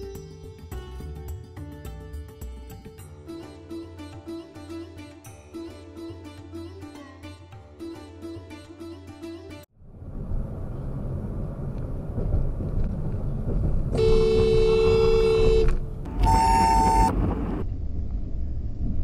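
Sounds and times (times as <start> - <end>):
car driving rumble: 9.8 - 19.0
car horn honking: 14.0 - 17.1.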